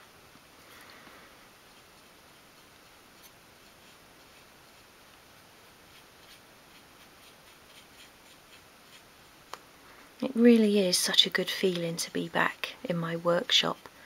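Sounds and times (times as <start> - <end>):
low hiss: 0.0 - 14.0
paintbrush dabbing paint: 1.5 - 9.5.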